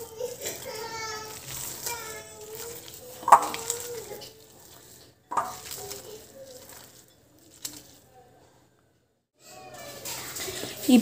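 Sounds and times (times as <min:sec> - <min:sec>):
onions squeezed by hand in bowl: 0:00.0 - 0:08.0
knocks against glass bowl: 0:03.2 - 0:03.6, 0:05.3 - 0:05.6.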